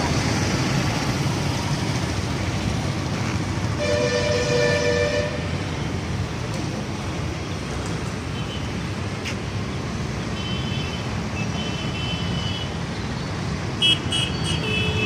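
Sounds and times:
road traffic rumble: 0.0s - 15.0s
vehicle horn toots: 3.8s - 5.5s.

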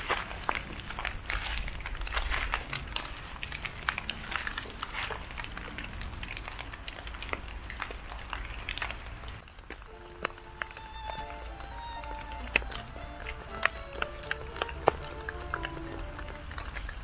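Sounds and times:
footsteps crunching on rubble: 0.0s - 5.6s.

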